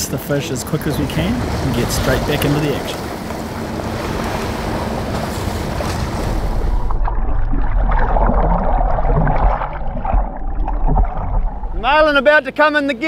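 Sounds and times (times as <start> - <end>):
water splashing beside a boat: 0.0 - 12.2
underwater rumble and bubbling: 1.6 - 12.2
wind buffeting microphone: 8.1 - 12.3.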